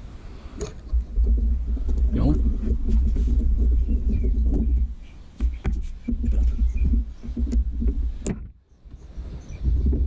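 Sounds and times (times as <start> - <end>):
low rumble: 0.7 - 5.1.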